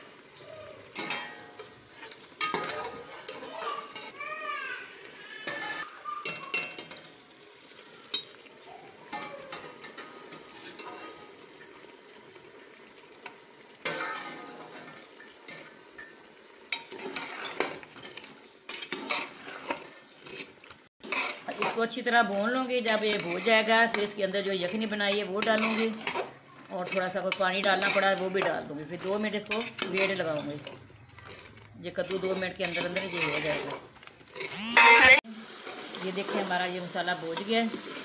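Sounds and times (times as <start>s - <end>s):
masala sizzling: 0.0s - 38.0s
metal spatula scraping a pot: 0.8s - 4.2s, 5.3s - 7.1s, 9.1s - 11.7s, 13.8s - 34.6s.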